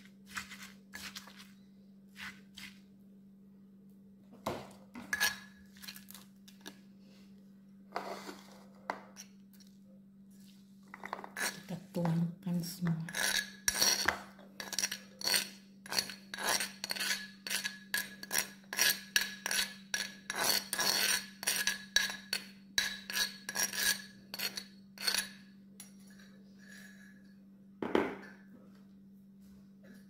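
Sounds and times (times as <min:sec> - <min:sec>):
spoon scraping stone mortar: 0:00.0 - 0:01.6, 0:02.2 - 0:02.8, 0:05.0 - 0:06.8, 0:07.9 - 0:09.6, 0:11.0 - 0:25.5.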